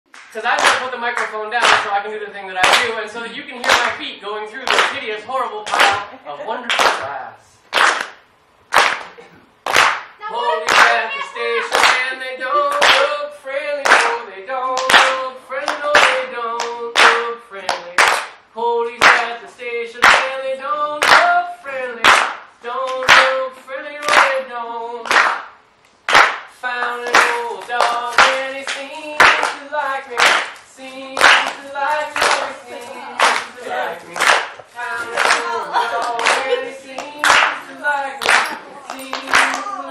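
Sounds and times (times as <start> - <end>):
hand clapping in rhythm: 0.1 - 2.0, 2.6 - 3.0, 3.6 - 4.0, 4.6 - 5.0, 5.6 - 19.4, 20.0 - 20.4, 21.0 - 39.9
voices singing held notes: 10.2 - 25.1, 26.6 - 39.9.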